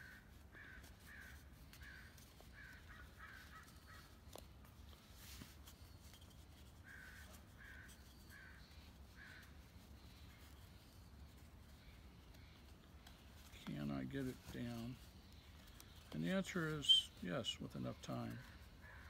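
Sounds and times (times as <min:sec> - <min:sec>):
faint crow cawing: 0:00.0 - 0:04.5, 0:06.8 - 0:13.2, 0:17.9 - 0:19.0.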